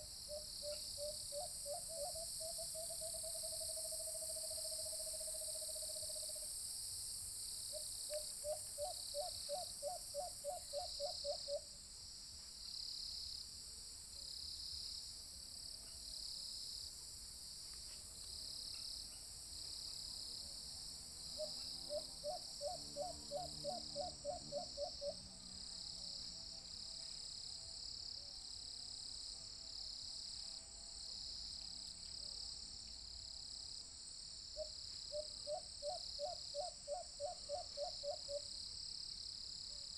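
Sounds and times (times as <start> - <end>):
pulsing insect chorus: 0.0 - 39.9
dove cooing: 21.4 - 25.2.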